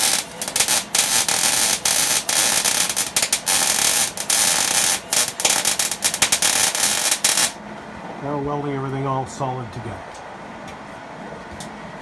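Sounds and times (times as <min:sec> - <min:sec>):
welding arc crackling hiss: 0:00.0 - 0:07.6.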